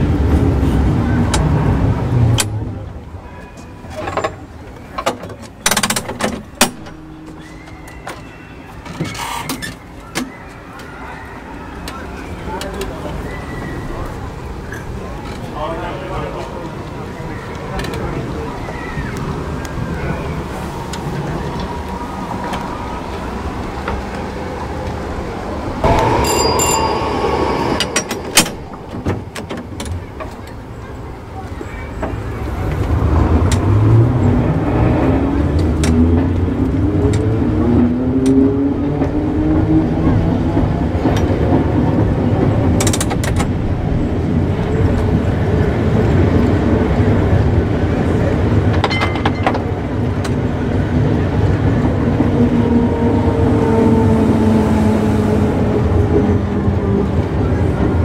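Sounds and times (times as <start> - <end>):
tram controller clicking and ratcheting: 3.9 - 7.4, 40.1 - 43.6
steady rumble: 24.9 - 31.1
tram bell ringing: 25.7 - 31.3, 48.8 - 53.2.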